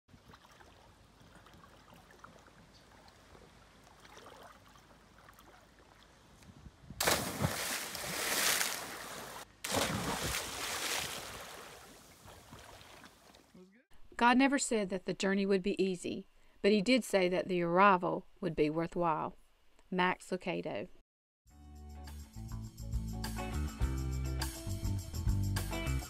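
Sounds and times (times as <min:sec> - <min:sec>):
water splashing: 0:00.1 - 0:06.2, 0:07.0 - 0:13.5
person diving into water: 0:07.0 - 0:13.4.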